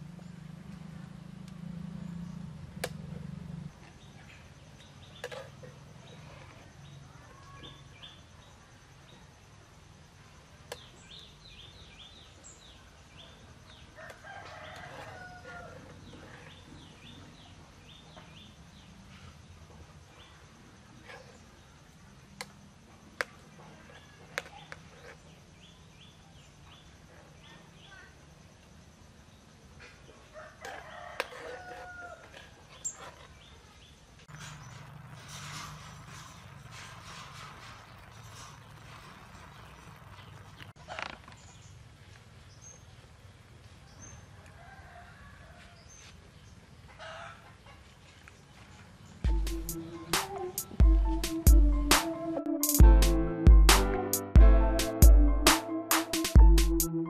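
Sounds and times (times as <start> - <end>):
birds chirping: 32.8 - 41.8, 48.8 - 57.0.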